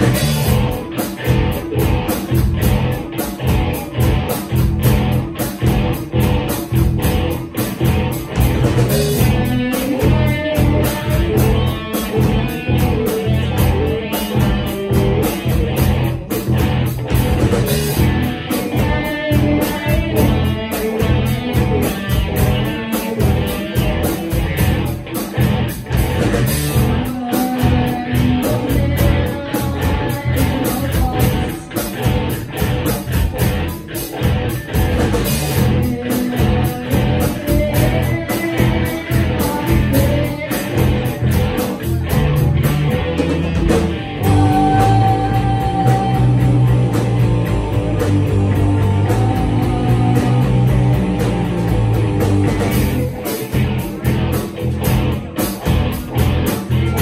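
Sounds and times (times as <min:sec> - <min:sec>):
bass guitar: 0:00.0 - 0:57.0
drum kit: 0:00.0 - 0:57.0
electric guitars: 0:00.0 - 0:57.0
person singing into microphone: 0:26.9 - 0:32.0, 0:35.7 - 0:41.8, 0:44.2 - 0:51.9.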